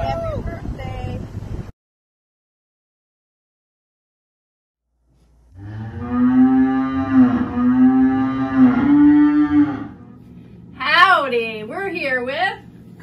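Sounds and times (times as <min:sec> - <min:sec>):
people imitating cow moos: 0:05.6 - 0:10.2.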